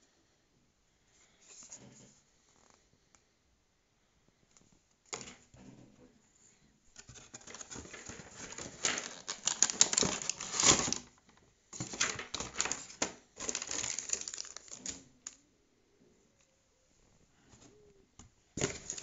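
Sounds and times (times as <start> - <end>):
plastic packaging crackling: 7.1 - 11.2, 11.8 - 15.4, 18.6 - 19.0.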